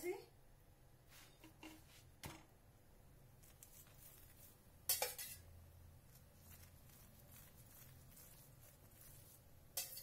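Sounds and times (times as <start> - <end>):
metal spoon clinking and scraping: 4.2 - 5.5, 6.5 - 10.0.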